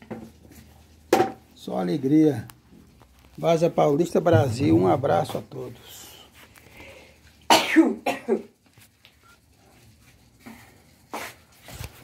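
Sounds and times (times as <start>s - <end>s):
man coughing: 7.5s - 8.5s.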